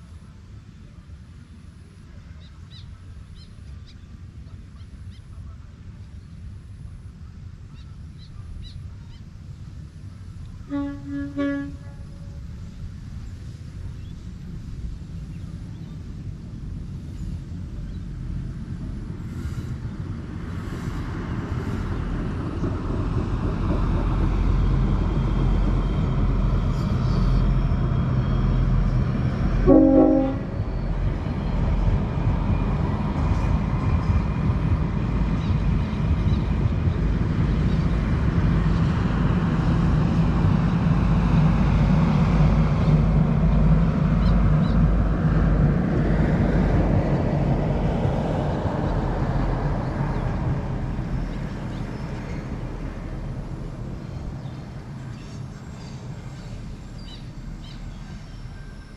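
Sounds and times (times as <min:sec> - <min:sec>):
diesel train running past: 0:00.0 - 0:58.9
train horn blast: 0:10.6 - 0:12.5, 0:29.3 - 0:30.8.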